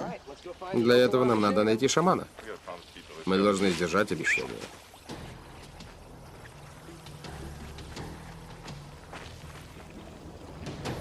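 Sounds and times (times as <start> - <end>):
background music: 3.2 - 11.0.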